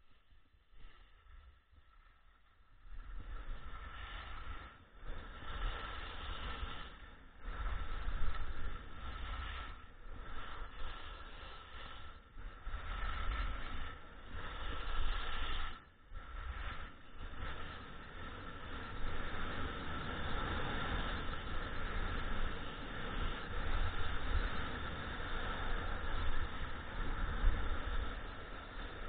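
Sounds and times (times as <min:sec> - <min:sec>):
skis sliding on snow: 0:00.0 - 0:29.0
wind rushing over microphone: 0:02.8 - 0:29.0.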